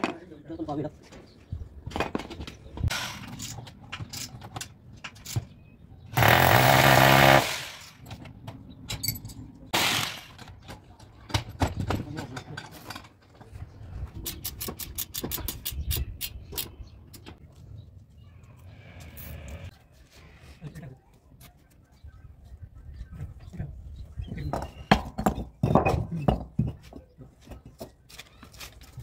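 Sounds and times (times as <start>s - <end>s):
clanks and rattles of steel: 1.9s - 5.6s, 10.3s - 13.5s
electric drill running: 6.2s - 7.8s.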